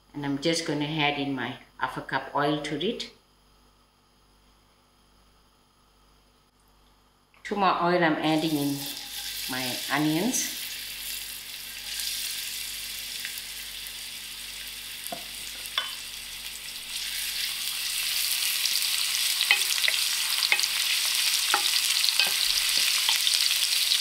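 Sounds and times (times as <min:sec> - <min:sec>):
onion sizzling in hot oil: 0:08.3 - 0:24.0.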